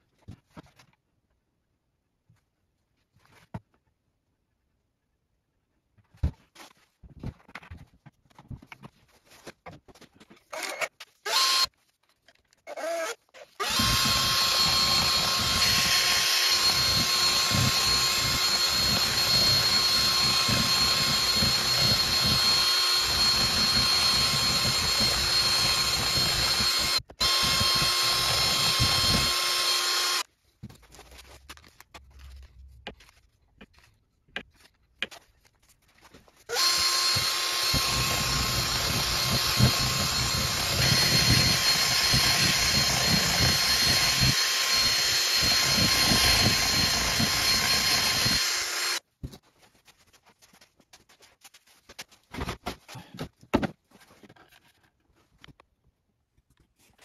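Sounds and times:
cordless drill whining: 0:10.5 - 0:11.7, 0:12.7 - 0:30.3, 0:36.5 - 0:49.0.

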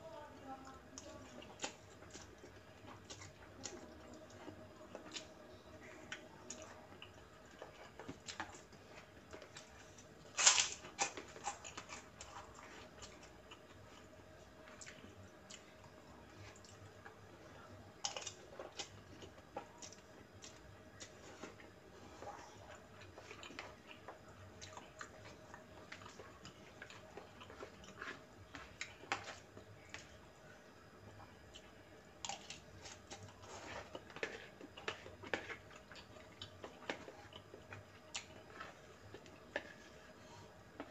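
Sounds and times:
chewing and slurping: 0:18.0 - 0:30.2, 0:31.5 - 0:40.9.

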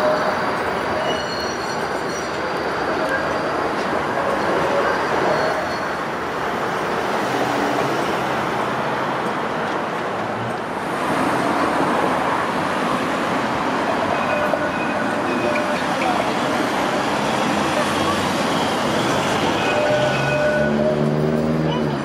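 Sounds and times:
road traffic passing: 0:05.9 - 0:22.0.

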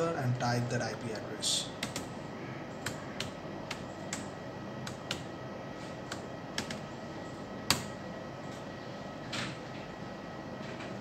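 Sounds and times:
laptop keys clicking: 0:01.8 - 0:02.1, 0:02.8 - 0:05.3, 0:06.0 - 0:06.9, 0:07.7 - 0:07.9.

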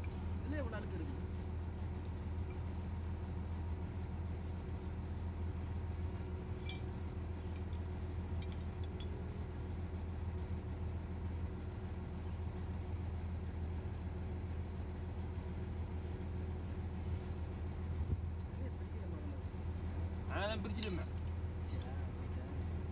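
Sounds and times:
engine idling: 0:00.0 - 0:22.9
faint metallic chain clinks: 0:06.5 - 0:06.9.

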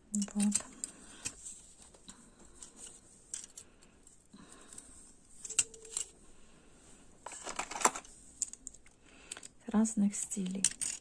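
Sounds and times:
metal clips clicking and clinking: 0:00.1 - 0:01.4, 0:02.6 - 0:03.6, 0:04.7 - 0:06.2, 0:10.3 - 0:11.0.

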